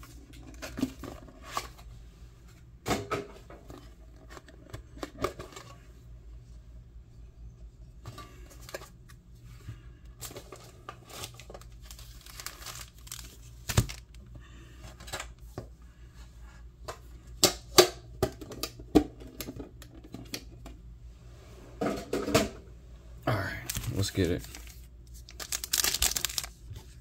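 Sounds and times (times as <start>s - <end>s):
plastic wrapping crinkling and tearing: 11.0s - 14.2s, 23.5s - 27.0s.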